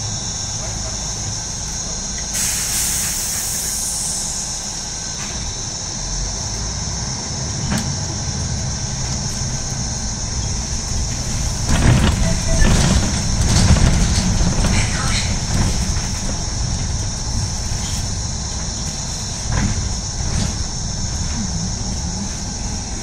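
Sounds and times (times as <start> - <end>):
bus engine rumbling: 0.0 - 23.0
air brake hiss: 2.3 - 4.8
rattling: 10.5 - 21.2.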